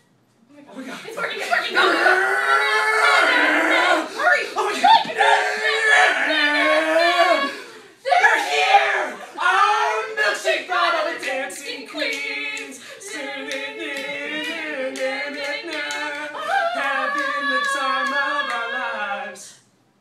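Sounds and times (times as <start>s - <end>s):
voices singing unaccompanied: 0.8s - 19.7s
hand claps: 11.2s - 16.3s.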